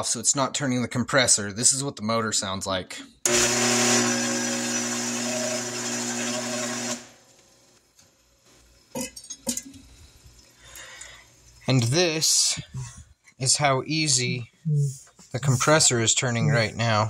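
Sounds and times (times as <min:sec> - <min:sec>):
electric motor humming: 0:03.3 - 0:07.2.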